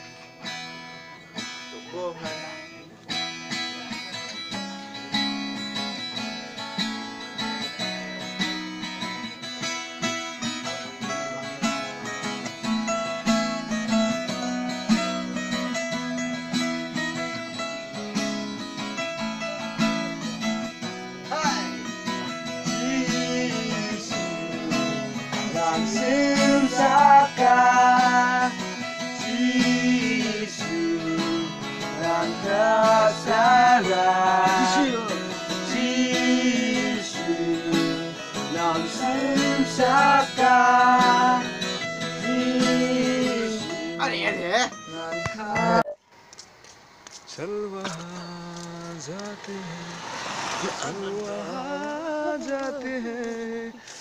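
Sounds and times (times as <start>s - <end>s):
acoustic guitar strumming chords: 0.0s - 46.0s, 47.4s - 54.0s
person singing: 22.6s - 44.0s, 50.6s - 54.0s.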